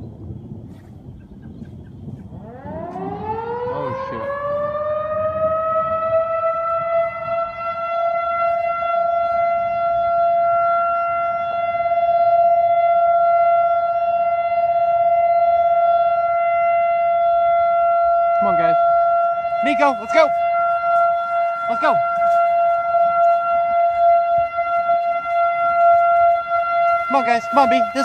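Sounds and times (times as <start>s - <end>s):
warning siren wailing: 1.8s - 28.0s.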